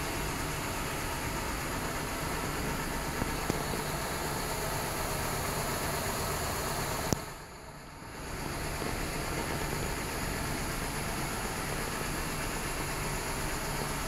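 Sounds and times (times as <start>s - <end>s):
steady hiss and rumble: 0.0s - 14.0s.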